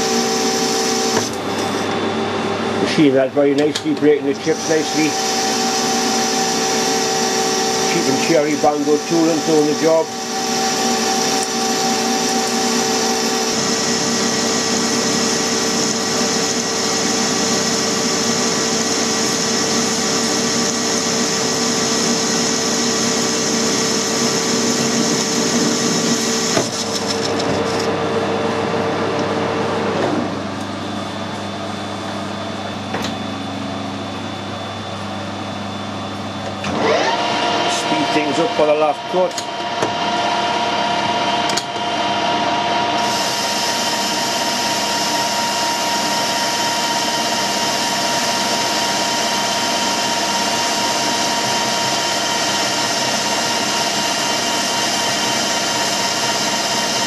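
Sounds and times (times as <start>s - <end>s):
lathe motor and gear whine: 0.0s - 57.0s
hiss of metal cutting: 4.4s - 13.6s.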